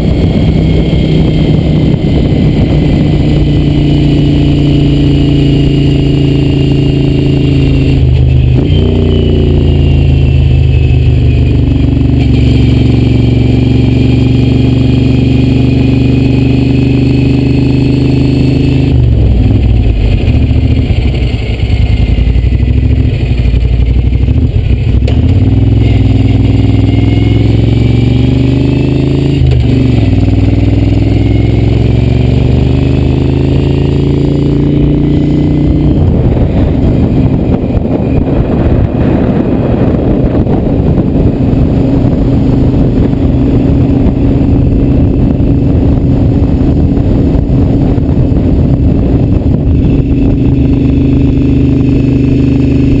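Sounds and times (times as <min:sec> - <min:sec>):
motorcycle engine accelerating: 0:00.0 - 0:53.0
wind on microphone: 0:00.0 - 0:53.0.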